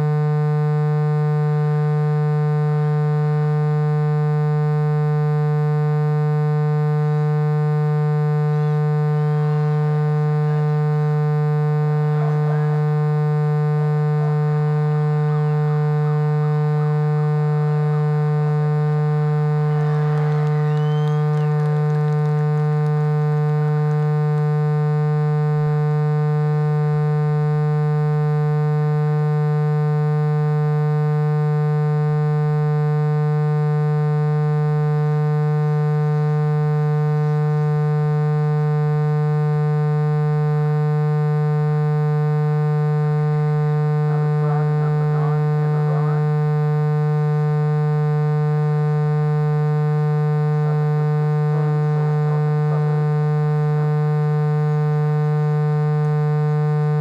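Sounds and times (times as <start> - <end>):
electrical hum: 6.2 - 27.6, 42.0 - 57.0
faint distant shouts: 12.1 - 13.0, 19.4 - 22.8, 44.1 - 46.3.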